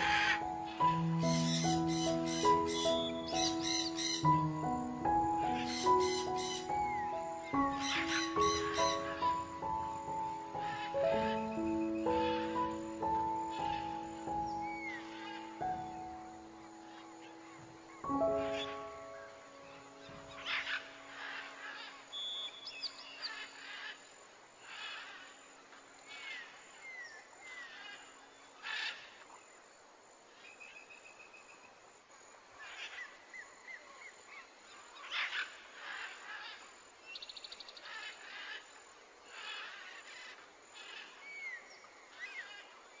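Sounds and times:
harsh scratchy bird calls: 0.0 - 4.3, 5.6 - 6.7
bird trill: 0.0 - 24.0
birds chirping and calling: 0.0 - 24.0.

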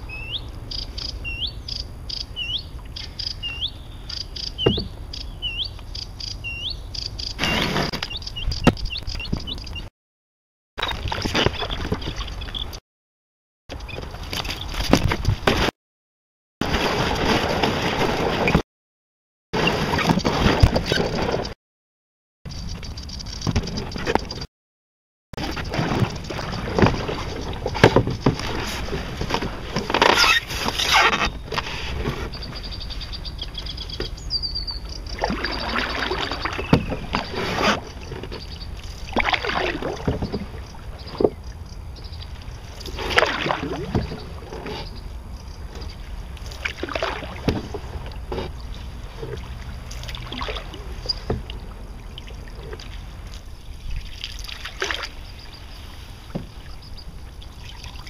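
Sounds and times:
canoe paddle pulling through water: 13.8 - 15.7, 16.6 - 18.6, 19.6 - 21.5, 25.4 - 58.0
water splashes and drips: 25.4 - 30.0, 35.0 - 41.6, 42.2 - 44.8, 46.0 - 58.0.

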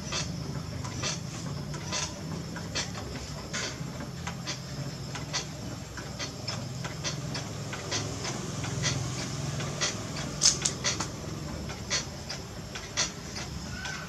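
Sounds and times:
potter's wheel humming: 0.0 - 14.0
high clicks: 9.8 - 13.5.

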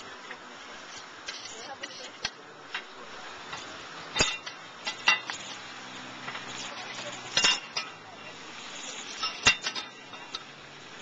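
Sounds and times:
metal utensils clanking on griddle: 0.2 - 5.6, 6.2 - 11.0.

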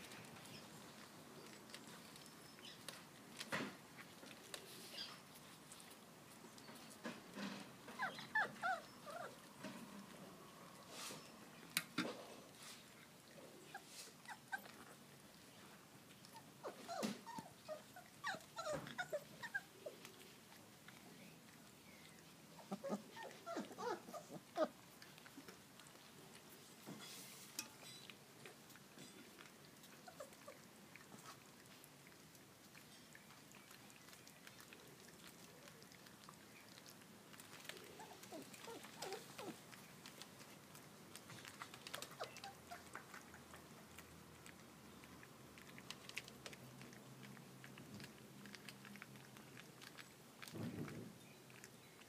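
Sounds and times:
puppies lapping food: 0.0 - 52.0.

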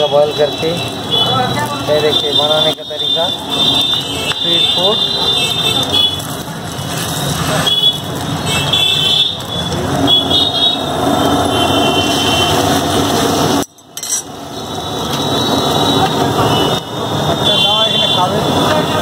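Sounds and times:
egg sizzling on a hot griddle: 5.5 - 15.8.

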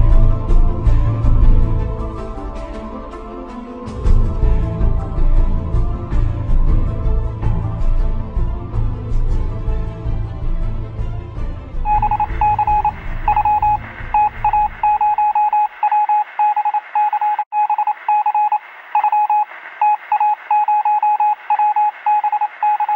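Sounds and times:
music: 0.0 - 15.4
morse code beeps: 11.9 - 22.9
radio static hiss: 12.9 - 22.9.

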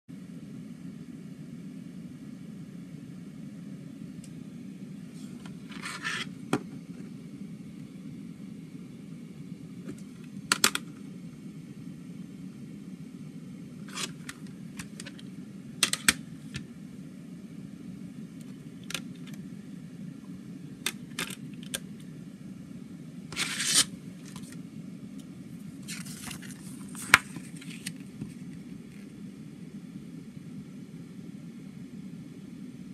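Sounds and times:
steady low hum: 0.1 - 32.9
plastic case clicks and snaps: 10.5 - 10.9, 15.8 - 16.2
short scrapes and rustles: 23.4 - 24.5.

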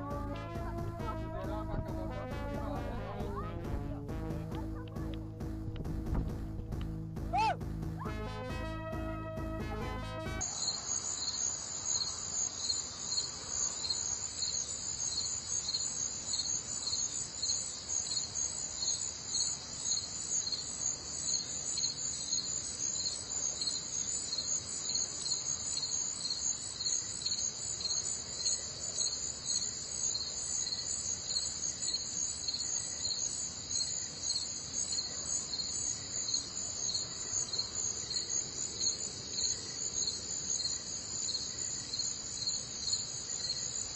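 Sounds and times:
insects chirping: 10.4 - 43.9.

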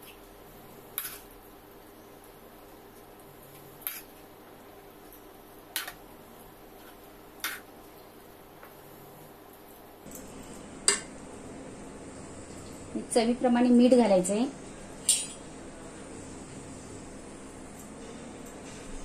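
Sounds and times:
metal spoon clinking on pan: 15.0 - 15.4.

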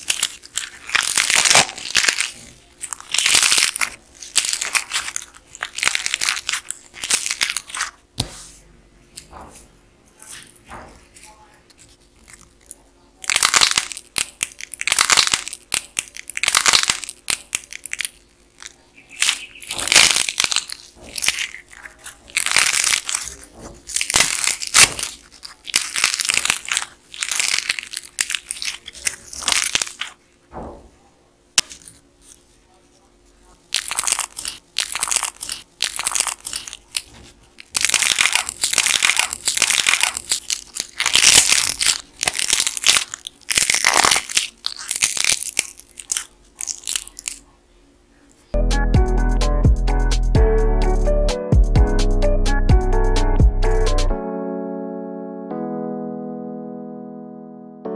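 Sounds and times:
dried clay cracking and crunching: 0.0 - 8.0, 9.1 - 30.8, 31.5 - 47.5.

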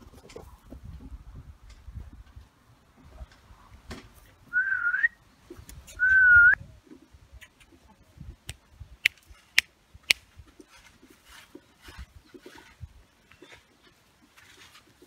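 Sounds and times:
person whistling: 4.6 - 5.2, 6.0 - 6.6.

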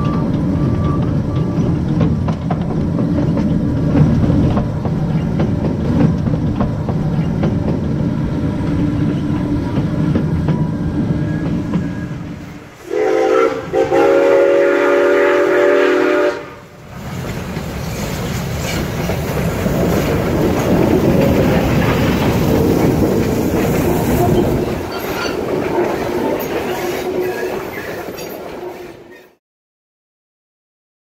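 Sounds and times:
steam locomotive chime whistle: 0.0 - 1.8, 10.6 - 16.7
train rumbling past: 0.0 - 29.4.

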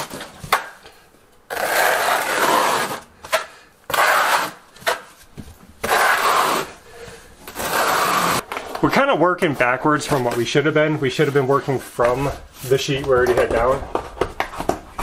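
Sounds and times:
trowel scraping wet mortar: 1.5 - 5.1, 5.8 - 6.8, 7.5 - 8.4.

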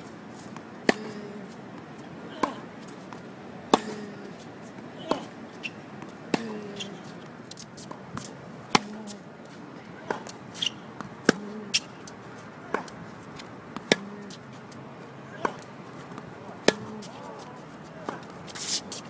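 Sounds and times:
racket hitting tennis ball: 0.4 - 9.3, 10.0 - 14.8, 15.4 - 19.0
tennis ball bouncing on hard court: 0.5 - 9.2, 10.0 - 12.1, 12.7 - 13.0, 13.8 - 14.4, 15.4 - 17.4.

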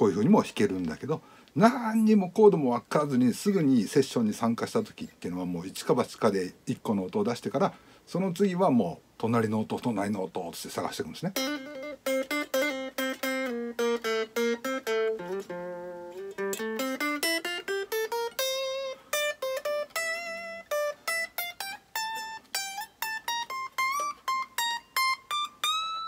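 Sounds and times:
electric guitar lead line: 11.4 - 26.0.

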